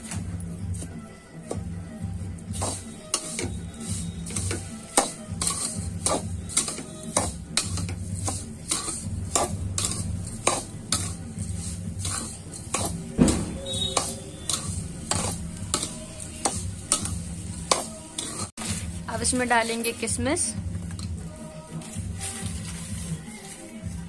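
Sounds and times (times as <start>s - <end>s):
spoon scraping metal pan: 2.4s - 18.8s.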